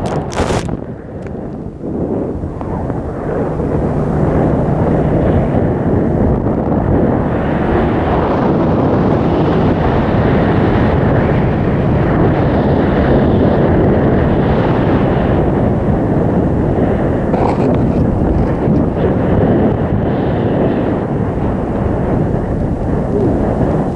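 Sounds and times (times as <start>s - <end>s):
wind buffeting microphone: 0.0s - 23.9s
brief scratchy sounds: 17.4s - 19.0s.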